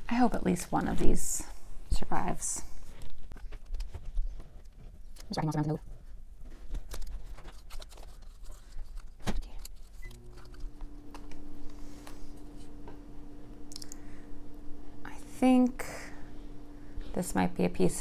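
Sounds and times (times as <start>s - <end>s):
steady low hum: 9.4s - 18.0s.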